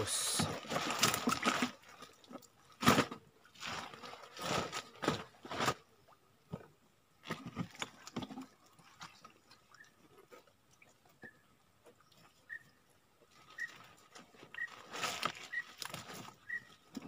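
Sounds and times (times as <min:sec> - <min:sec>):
plastic sack rustling: 0:03.0 - 0:05.8, 0:13.3 - 0:16.8.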